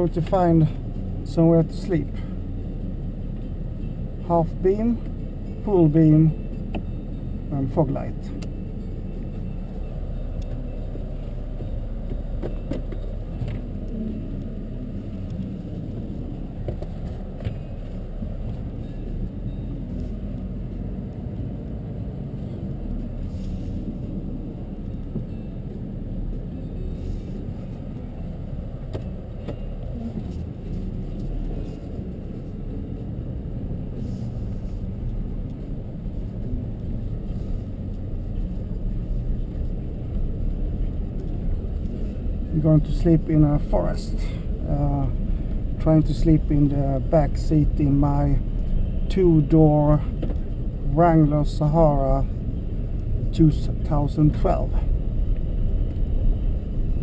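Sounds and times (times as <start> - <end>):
car engine rumble: 0.0 - 57.0
tyre and road noise: 0.0 - 57.0.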